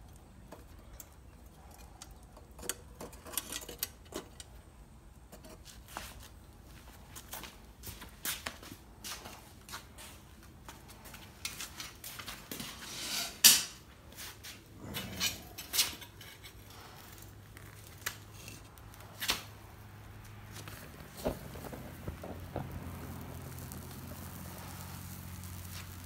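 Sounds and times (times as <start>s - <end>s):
molten metal pouring crackle: 14.9s - 26.0s.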